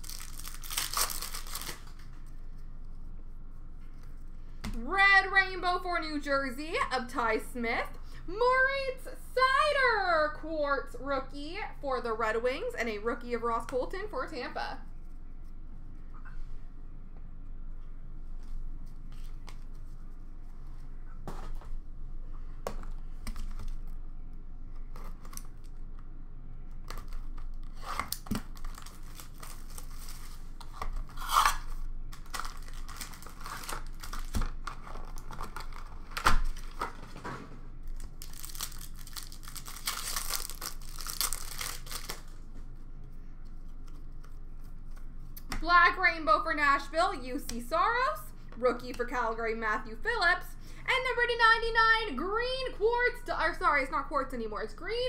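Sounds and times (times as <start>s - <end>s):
pack wrappers tearing and crinkling: 0.0s - 2.2s, 26.9s - 37.0s, 37.9s - 42.4s.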